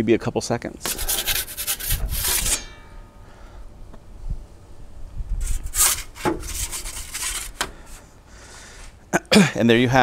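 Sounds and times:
metal peel scraping stone floor: 0:00.8 - 0:02.8, 0:05.4 - 0:08.0.

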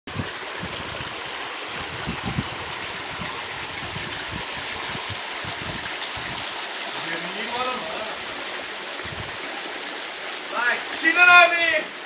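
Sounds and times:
stream rushing over stones: 0:00.1 - 0:12.0.

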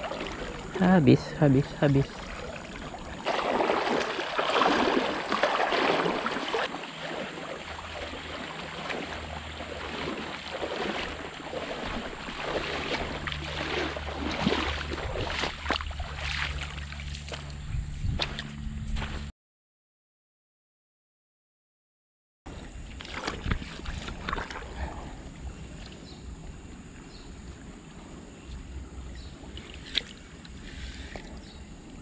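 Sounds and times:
water splashing from wading: 0:00.0 - 0:17.6, 0:22.5 - 0:26.1, 0:29.0 - 0:31.4.

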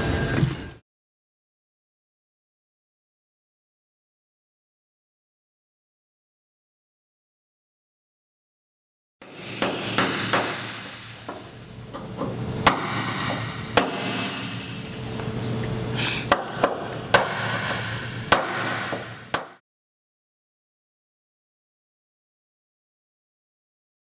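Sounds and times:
sharp bangs and knocks: 0:09.2 - 0:14.8, 0:16.3 - 0:19.6
steady background hum: 0:09.2 - 0:19.6.

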